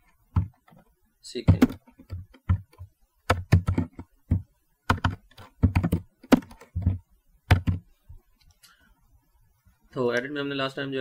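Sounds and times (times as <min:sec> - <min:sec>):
computer keyboard typing: 0:01.5 - 0:07.8.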